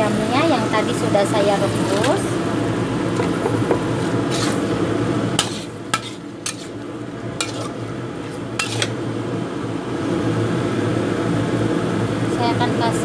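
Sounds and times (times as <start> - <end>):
light sizzle: 0.0 - 13.0
spatula scraping a pan: 4.0 - 4.7, 5.4 - 6.8, 7.4 - 9.0.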